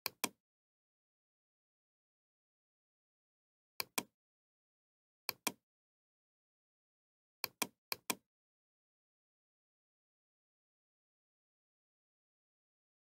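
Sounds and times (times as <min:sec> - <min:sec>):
computer mouse clicks: 0:00.0 - 0:00.4, 0:03.8 - 0:04.1, 0:05.3 - 0:05.6, 0:07.4 - 0:08.2.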